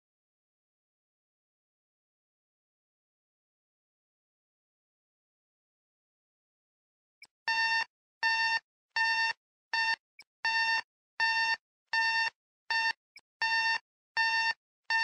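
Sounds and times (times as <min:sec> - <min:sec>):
alarm clock beeping: 0:07.5 - 0:15.0.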